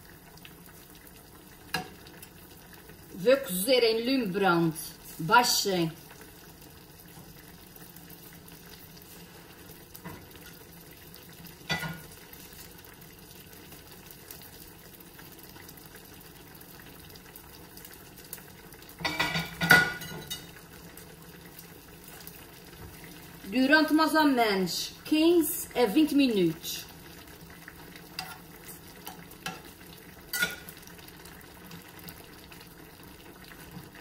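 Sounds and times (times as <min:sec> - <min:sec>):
broth simmering with faint bubbling: 0:00.0 - 0:34.0
spatula and glass lid clattering: 0:30.3 - 0:30.6.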